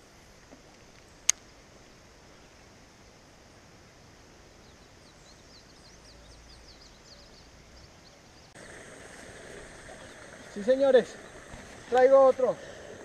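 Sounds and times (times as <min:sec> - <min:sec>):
outdoor background hiss: 0:00.0 - 0:13.0
birds chirping: 0:04.6 - 0:13.0.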